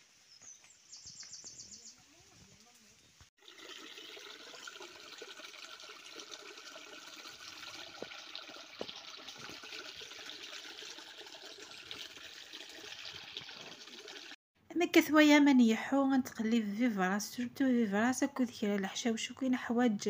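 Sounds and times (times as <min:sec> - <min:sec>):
stream trickling over stones: 0:03.4 - 0:14.4.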